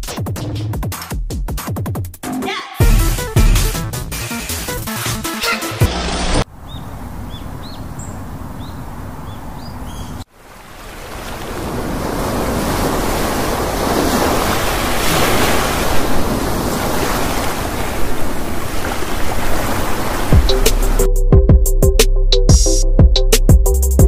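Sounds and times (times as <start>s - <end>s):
bird chirps: 6.6s - 10.2s
surf washing onto beach: 10.3s - 21.0s.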